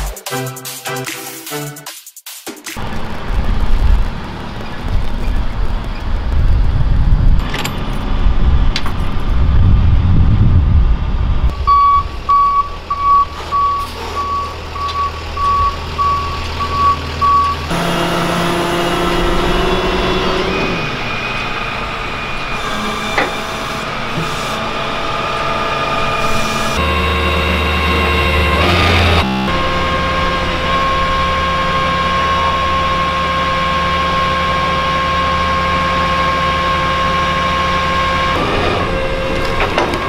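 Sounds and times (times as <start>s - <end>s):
diesel truck rumble: 2.8s - 40.0s
tow truck engine whine: 2.8s - 40.0s
backup alarm beeping: 11.5s - 17.7s.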